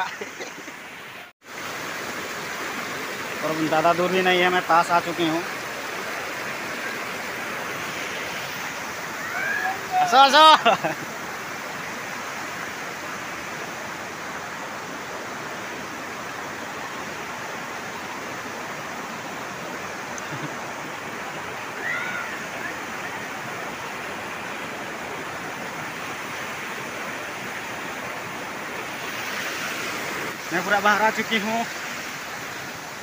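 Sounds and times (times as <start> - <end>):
water rushing over dam: 0.0 - 33.0
faint voice calling out: 9.2 - 10.6.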